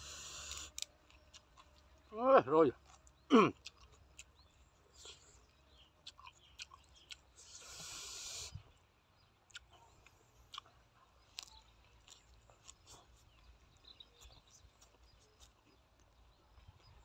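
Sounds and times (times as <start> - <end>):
wet chewing smacks: 2.8 - 8.4, 9.4 - 16.2
fingers picking through food: 9.5 - 16.2.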